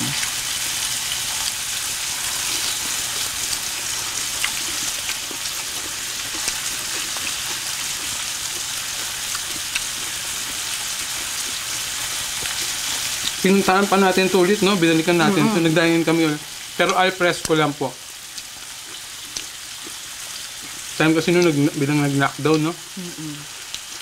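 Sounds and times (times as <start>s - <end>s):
meat sizzling on a grill pan: 0.0s - 24.0s.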